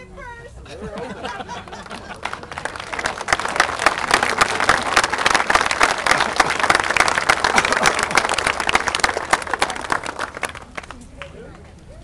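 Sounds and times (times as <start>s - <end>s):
crowd applauding: 1.0s - 11.6s.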